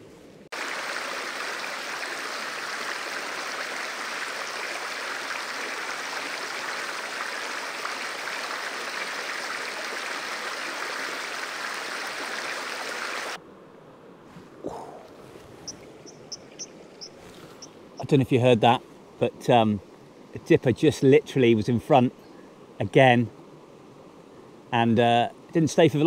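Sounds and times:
fast-flowing stream rushing: 0.6s - 13.4s.

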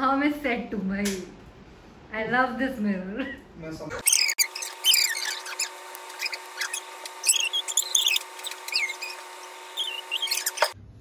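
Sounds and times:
high-pitched squeaks and chirps: 4.0s - 10.8s.

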